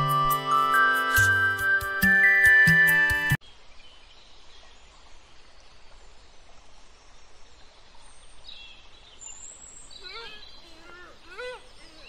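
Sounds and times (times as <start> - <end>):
background music: 0.0 - 3.4
faint outdoor background noise: 3.4 - 12.0.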